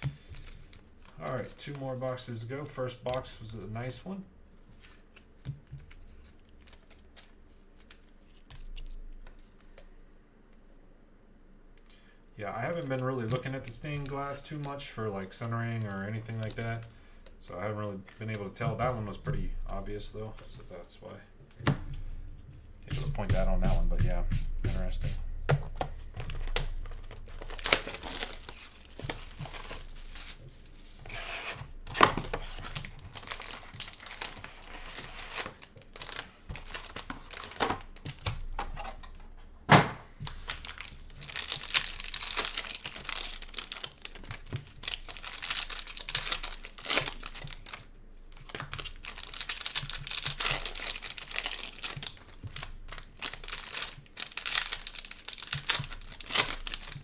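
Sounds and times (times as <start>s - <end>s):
wrappers crinkling and tearing: 0.0s - 4.0s, 4.6s - 9.7s, 12.5s - 17.0s, 26.1s - 38.5s, 40.2s - 57.0s.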